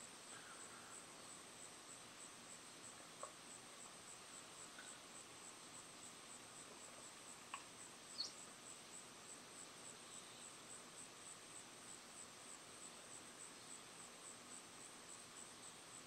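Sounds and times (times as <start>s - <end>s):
high-pitched insect chirping: 7.6s - 8.5s.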